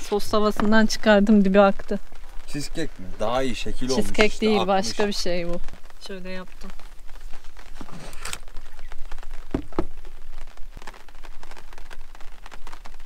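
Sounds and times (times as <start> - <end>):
fine patter of ticks: 0.0 - 13.0
short rustle: 7.1 - 10.0
dull knocks: 9.5 - 10.0.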